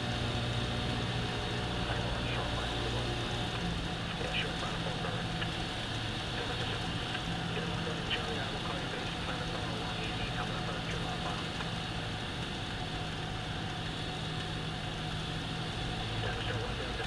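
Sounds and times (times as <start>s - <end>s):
airplane engine and propeller drone: 0.0s - 17.0s.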